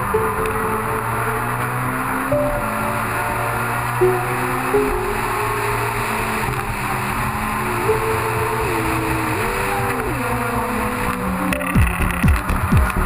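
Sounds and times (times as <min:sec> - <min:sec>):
rally car engine and road noise: 0:00.0 - 0:13.0
fast thumping kick drum beat: 0:11.8 - 0:13.0.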